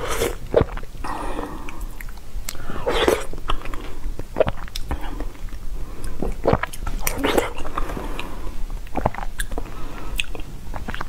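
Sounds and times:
wet chewing and slurping: 0.0s - 0.9s, 1.6s - 11.0s
lip smacks: 10.2s - 11.0s.

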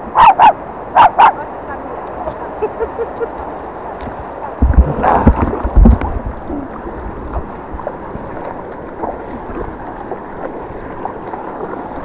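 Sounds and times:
boat buffeting and splashing: 0.0s - 12.0s
rushing water and wind: 0.0s - 12.0s
dog barking: 0.2s - 1.4s.

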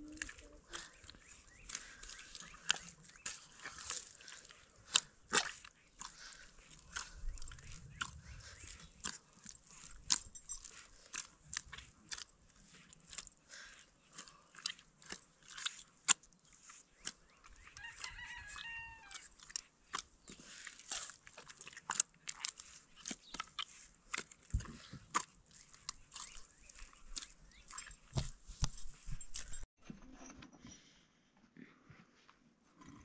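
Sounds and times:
hand kneading dough in metal pot: 0.0s - 29.7s
chicken calling: 17.8s - 19.3s.

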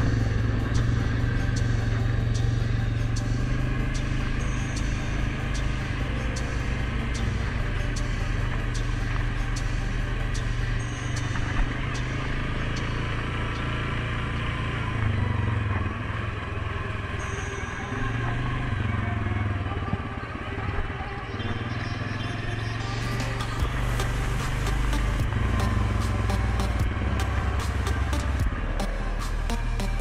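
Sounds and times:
atv engine running: 0.0s - 30.0s
sharp ticks: 23.1s - 30.0s.

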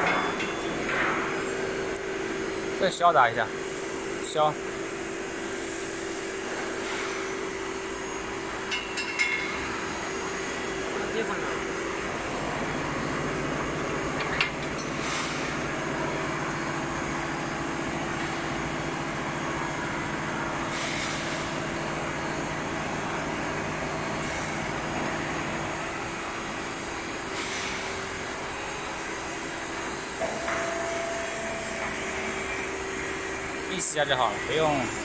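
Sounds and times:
higher steady tone: 30.2s - 33.2s.

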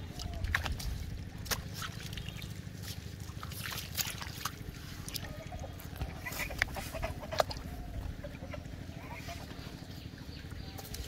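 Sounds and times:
sharp splashes and clicks: 0.0s - 5.3s
low steady rumble: 0.0s - 11.0s
water sloshing and splashing: 0.0s - 11.0s.

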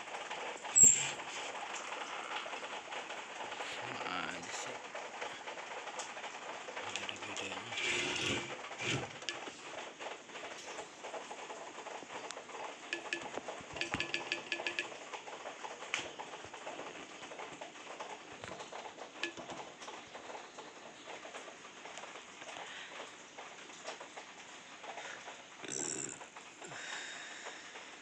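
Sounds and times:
scattered clicks: 12.2s - 20.7s.

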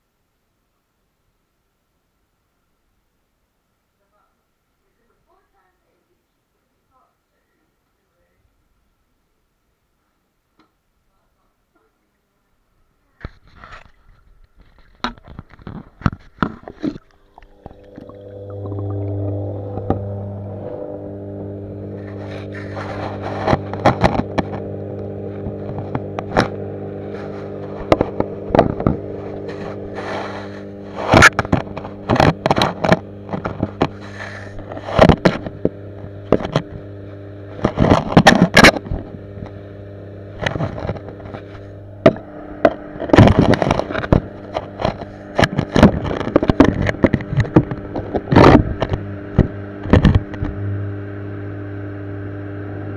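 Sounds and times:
aquarium equipment hum: 12.1s - 52.9s.

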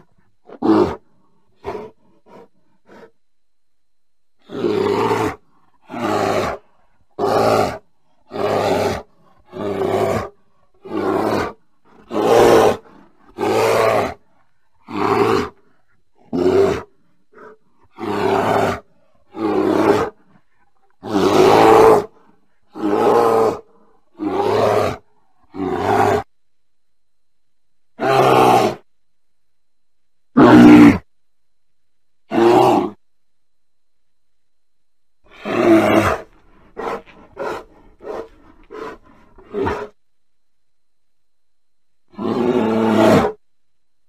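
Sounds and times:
bear calling: 0.0s - 3.1s, 35.3s - 40.0s.

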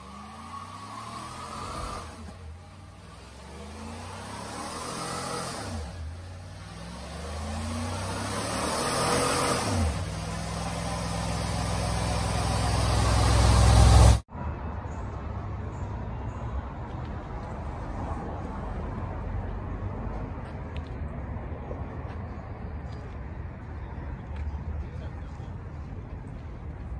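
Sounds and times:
truck engine revving: 0.0s - 14.2s.

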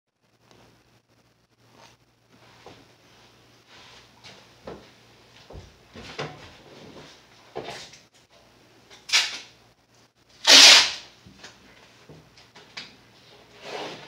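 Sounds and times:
masking tape pulled off roll: 9.1s - 9.5s, 10.4s - 11.1s.

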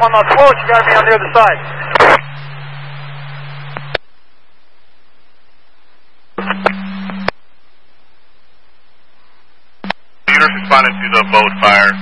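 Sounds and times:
low hum: 0.0s - 12.0s
radio channel hiss: 0.0s - 12.0s
radio click: 1.9s - 2.2s, 3.7s - 4.0s, 6.4s - 7.4s.

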